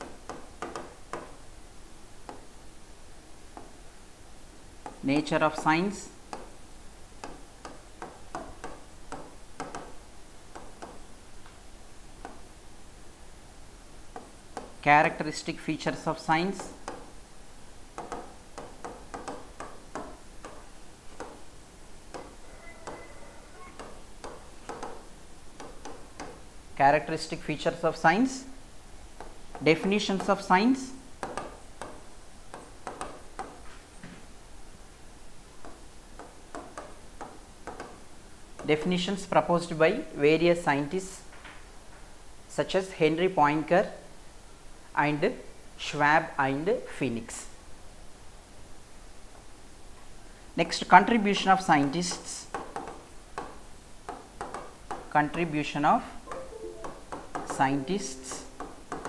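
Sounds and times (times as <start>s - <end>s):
pen tapping and scratching on a board: 0.0s - 1.4s, 18.0s - 21.4s, 22.1s - 23.1s, 23.8s - 26.4s, 31.2s - 33.6s, 35.6s - 38.0s, 52.0s - 55.1s
marker writing on whiteboard: 16.3s - 17.1s, 18.0s - 21.5s, 22.1s - 26.4s, 29.2s - 33.7s, 51.3s - 55.5s.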